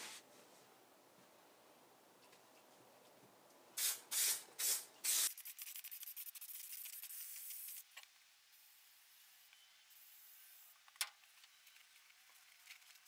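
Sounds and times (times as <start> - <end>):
aerosol can hissing: 3.8 - 7.8.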